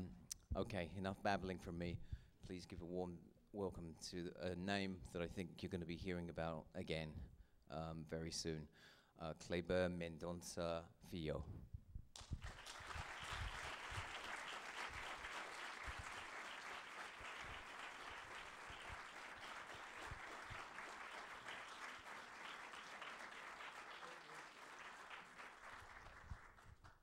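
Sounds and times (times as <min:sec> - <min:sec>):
audience applauding: 0:12.2 - 0:27.0.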